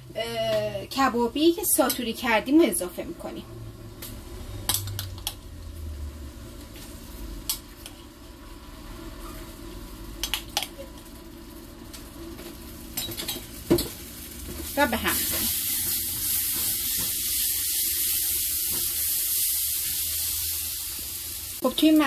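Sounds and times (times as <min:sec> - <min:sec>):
mixture sizzling in a pan: 0:11.3 - 0:22.0.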